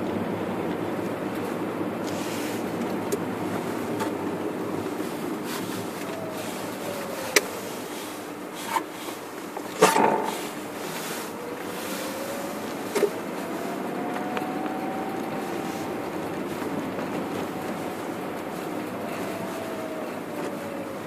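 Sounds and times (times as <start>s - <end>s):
faint whine: 0.0s - 21.0s
tyres and engine rumbling: 0.0s - 21.0s.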